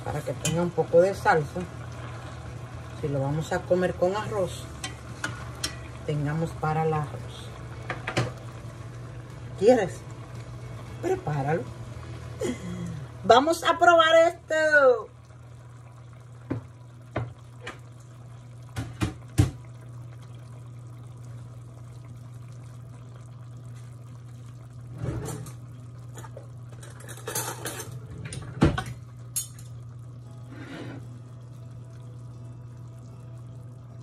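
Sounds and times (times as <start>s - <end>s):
steady low hum: 0.0s - 34.0s
dishes clinking against metal pot: 4.8s - 5.9s, 26.2s - 28.0s.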